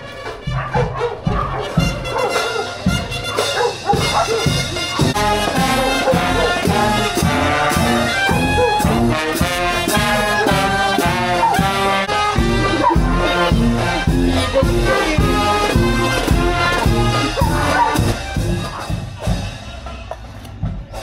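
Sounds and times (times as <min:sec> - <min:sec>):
brass marching band playing: 0:00.0 - 0:21.0.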